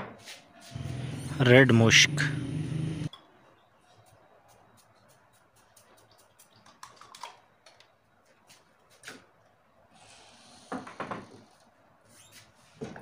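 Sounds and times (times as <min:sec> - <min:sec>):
small objects clicking and tapping: 0:04.5 - 0:08.0.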